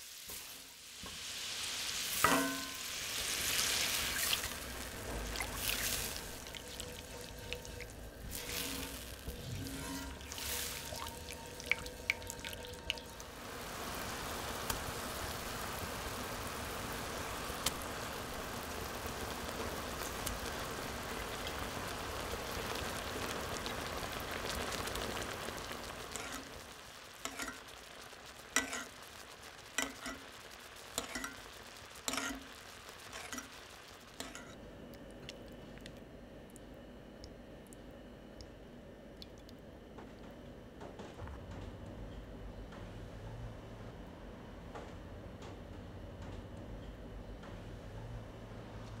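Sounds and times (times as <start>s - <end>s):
fish sizzling in hot fat: 0.0s - 34.6s
spatula stirring sauce in skillet: 2.2s - 13.3s, 24.4s - 34.6s.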